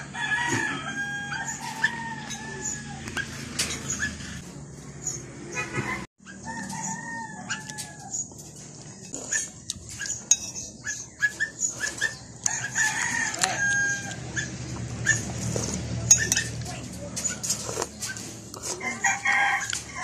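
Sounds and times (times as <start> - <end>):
rooster crowing: 0.0 - 3.2, 6.3 - 8.3, 12.4 - 14.4.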